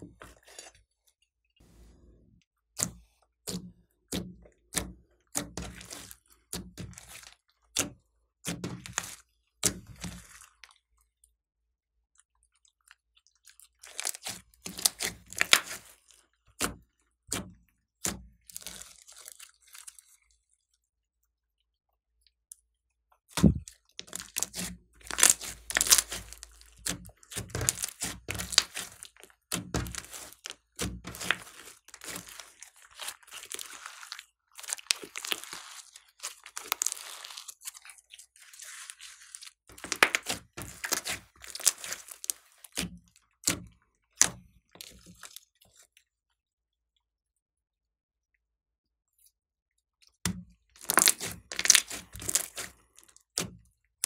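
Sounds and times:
slime crackling and popping: 13.7 - 16.0, 18.0 - 20.0, 23.3 - 43.6, 50.7 - 53.5.

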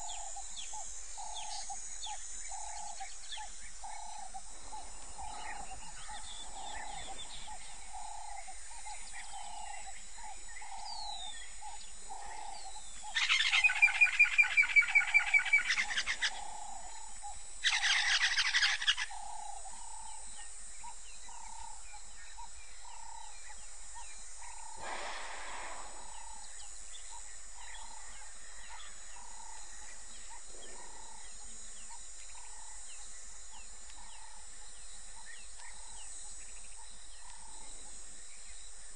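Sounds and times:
steady high hiss: 0.0 - 38.9
soft repeated bird note: 24.7 - 26.7.

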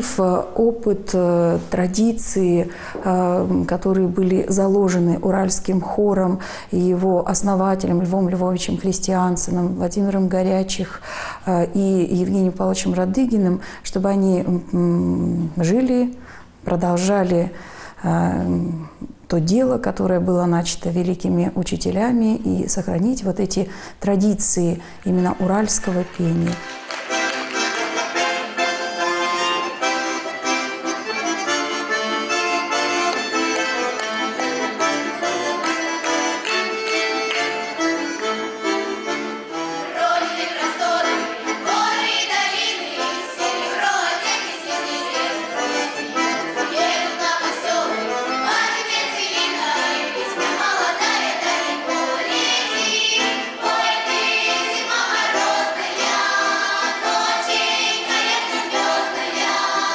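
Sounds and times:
accordion folk music: 0.0 - 18.0, 19.4 - 59.9
group of young voices singing: 39.8 - 59.9.

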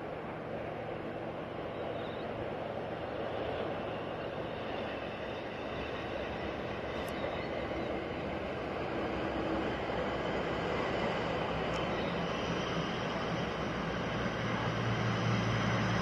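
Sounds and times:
distant train rumble: 0.0 - 16.0.

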